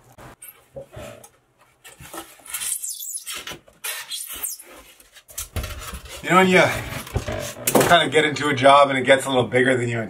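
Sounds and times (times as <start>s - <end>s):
insulation scraping and tearing: 1.9s - 7.7s.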